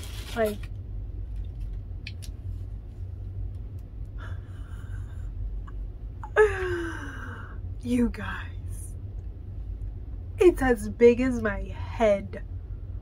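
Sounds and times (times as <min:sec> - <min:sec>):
steady low hum: 0:00.0 - 0:13.0
faint breathing: 0:04.2 - 0:05.5.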